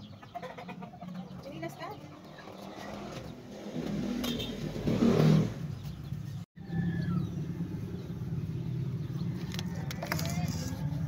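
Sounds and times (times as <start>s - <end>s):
vehicle engine humming: 1.1s - 11.0s.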